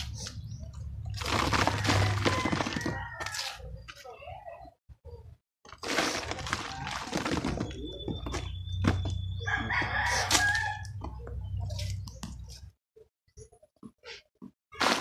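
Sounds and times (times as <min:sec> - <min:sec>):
soil sifting through wire mesh: 0:01.2 - 0:03.6, 0:05.8 - 0:07.9.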